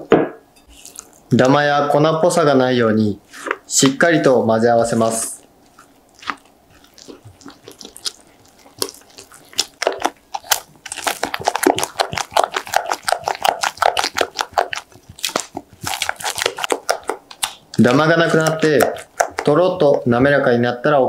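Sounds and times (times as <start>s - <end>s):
spatula stirring batter in glass bowl: 5.7s - 19.7s.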